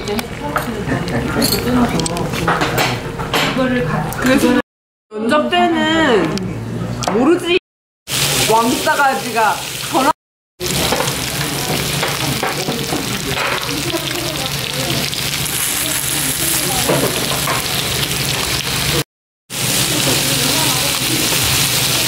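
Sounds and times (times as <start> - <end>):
food sizzling on grill pan: 8.1 - 22.0.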